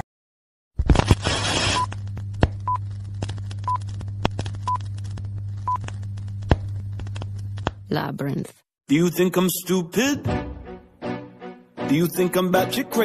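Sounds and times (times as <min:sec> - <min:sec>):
crackling clicks: 0:00.8 - 0:07.8
low electrical hum: 0:00.9 - 0:08.5.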